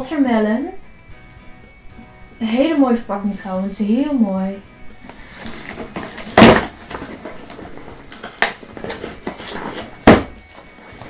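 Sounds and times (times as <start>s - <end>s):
cardboard box rustling: 5.1s - 11.0s
sharp cardboard noises: 5.3s - 11.0s.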